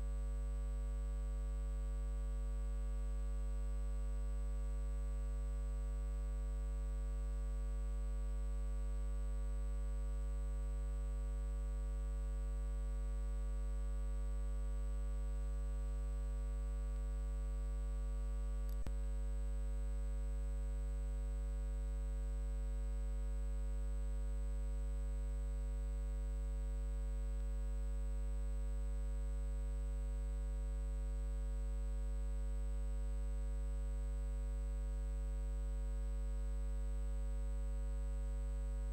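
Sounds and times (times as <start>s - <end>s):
sharp click: 18.6s - 18.9s.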